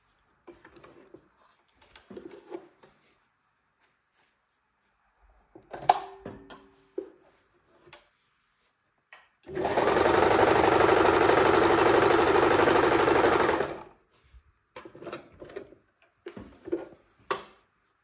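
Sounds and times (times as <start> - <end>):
sewing machine stitching: 9.5 - 13.9.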